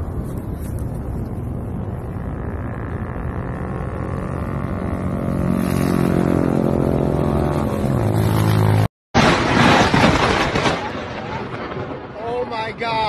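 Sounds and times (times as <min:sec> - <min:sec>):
motor humming: 0:00.7 - 0:07.2.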